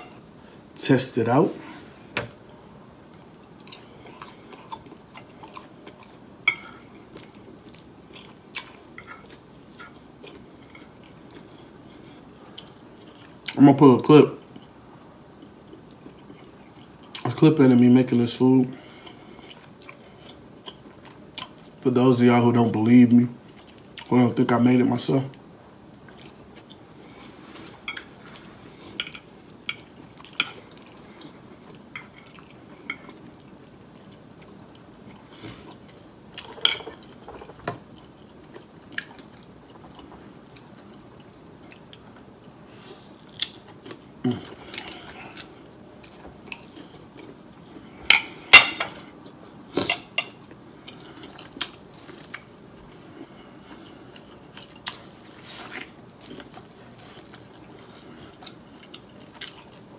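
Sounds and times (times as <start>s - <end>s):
chewing: 2.5s - 13.6s, 18.9s - 21.8s, 25.3s - 48.0s, 48.9s - 59.9s.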